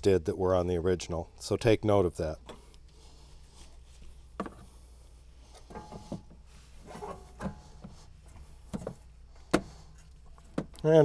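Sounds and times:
light metal knocks and scrapes: 0:05.5 - 0:10.8.

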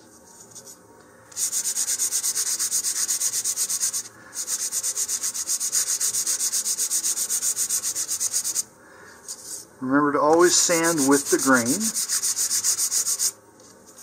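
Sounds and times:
sandpaper rasping on wood: 0:01.4 - 0:08.6, 0:10.9 - 0:13.4.

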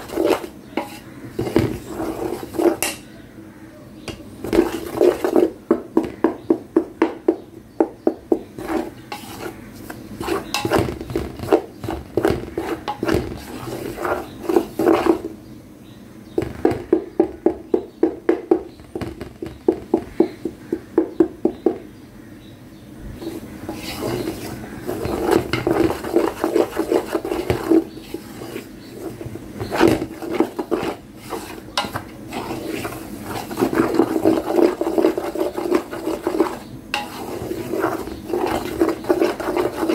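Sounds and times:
spatula scraping steel bowl: 0:00.0 - 0:03.1, 0:04.4 - 0:06.2, 0:08.3 - 0:15.3, 0:23.2 - 0:39.9.

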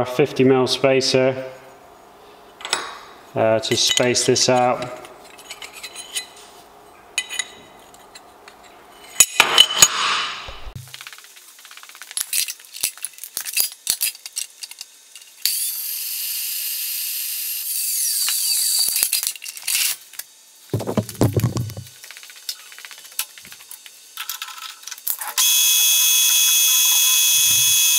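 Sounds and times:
small steel parts clinking: 0:03.7 - 0:06.5, 0:07.2 - 0:10.0, 0:10.8 - 0:15.4, 0:18.8 - 0:20.0, 0:21.3 - 0:25.4
metal clatter: 0:20.8 - 0:21.9.

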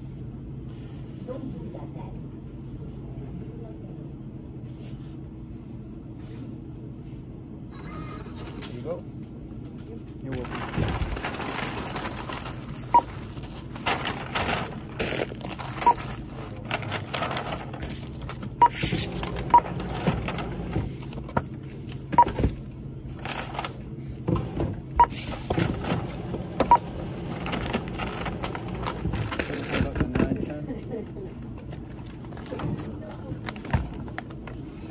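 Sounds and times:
goods rustling into paper bag: 0:10.2 - 0:22.0, 0:26.9 - 0:30.2
barcode scanner beeping: 0:12.9 - 0:13.1, 0:15.8 - 0:16.0, 0:18.6 - 0:18.8.

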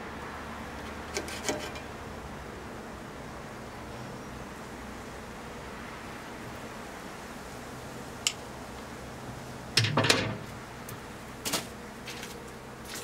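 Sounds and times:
knocks and clunks on metal: 0:09.8 - 0:10.5.

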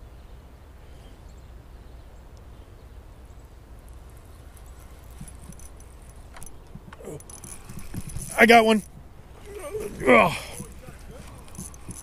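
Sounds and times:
low outdoor rumble: 0:00.0 - 0:12.0
faint knocks: 0:04.7 - 0:12.0.

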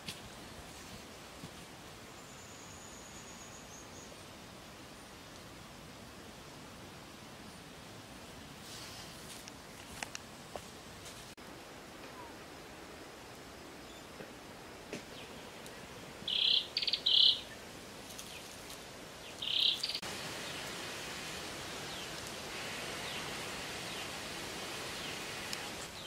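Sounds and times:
steady outdoor hiss: 0:00.0 - 0:26.0
bird harsh calls: 0:16.3 - 0:17.5.

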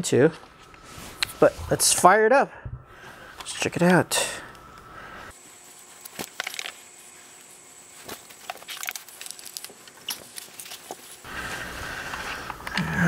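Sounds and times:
power cable handling clicks and rustles: 0:06.0 - 0:06.8.

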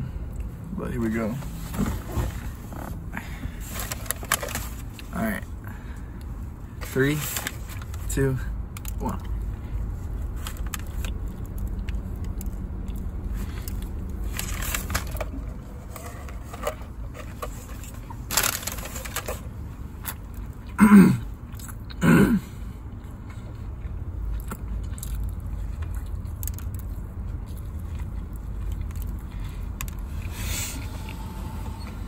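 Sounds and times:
steady low rumble: 0:00.0 - 0:32.0
breathing: 0:03.1 - 0:03.9, 0:05.6 - 0:06.8
man chewing and swallowing: 0:08.6 - 0:14.3, 0:19.7 - 0:31.2.

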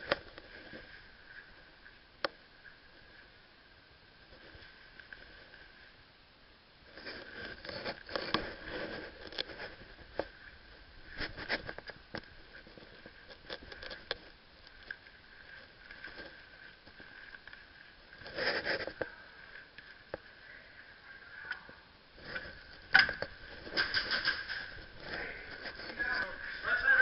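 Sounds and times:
footsteps: 0:22.2 - 0:27.0.

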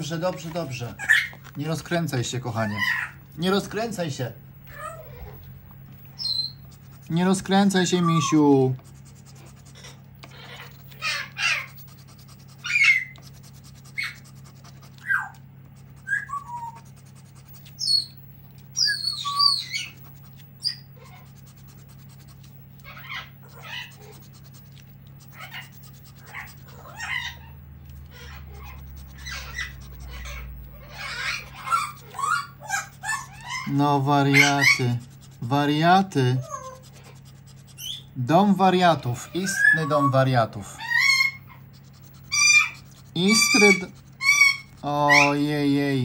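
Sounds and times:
bird shrill calls and whistles: 0:06.2 - 0:06.6, 0:16.0 - 0:16.8, 0:17.8 - 0:18.2, 0:18.8 - 0:20.0, 0:37.8 - 0:38.1
high bird chirps: 0:06.2 - 0:06.7, 0:16.0 - 0:16.8, 0:17.8 - 0:18.2, 0:18.8 - 0:20.0, 0:37.8 - 0:38.1.

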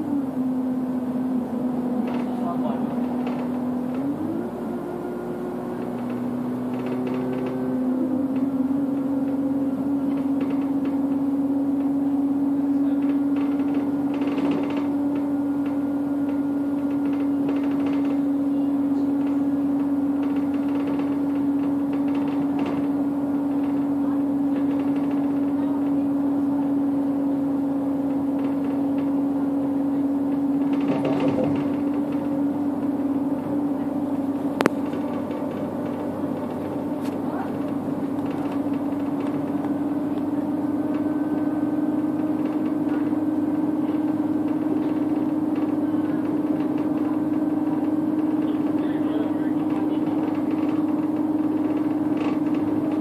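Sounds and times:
bus engine drone: 0:00.0 - 0:53.0
road and tyre noise: 0:00.0 - 0:53.0.

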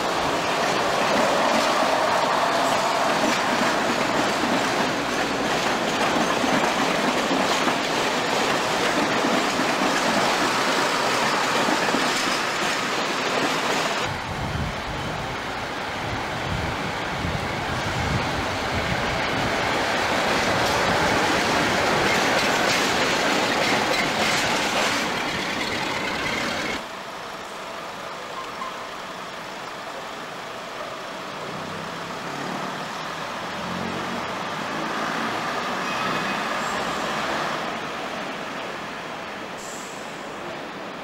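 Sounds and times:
loud rushing noise: 0:00.0 - 0:06.0
diesel train engine hum: 0:00.0 - 0:34.8.

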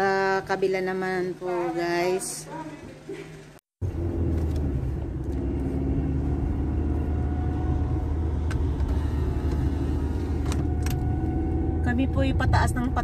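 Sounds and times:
car engine and tyres drone: 0:03.8 - 0:13.0.

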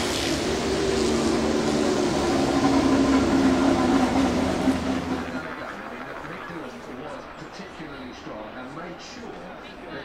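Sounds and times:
racing motorcycle engine passing: 0:00.0 - 0:06.4.

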